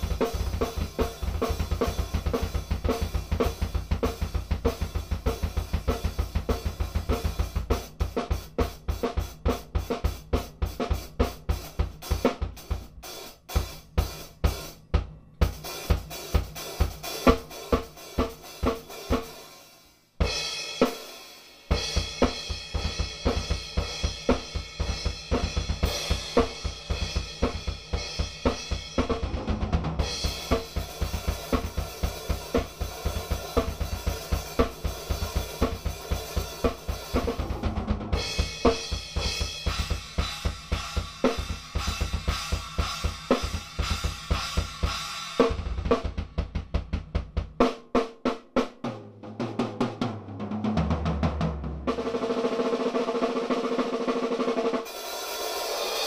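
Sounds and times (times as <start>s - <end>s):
bass drum strokes: 36.8s - 40.6s.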